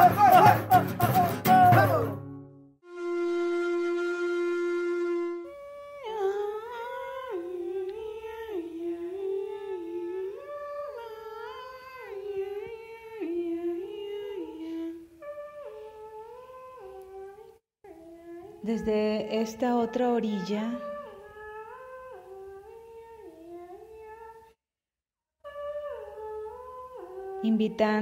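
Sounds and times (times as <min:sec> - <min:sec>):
person humming a melody: 0:05.5 - 0:24.4, 0:25.5 - 0:28.0.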